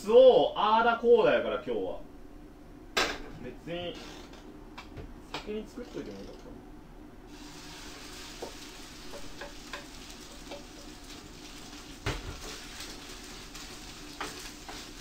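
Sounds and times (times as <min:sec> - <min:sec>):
rice sizzling in a frying pan: 0:07.3 - 0:15.0.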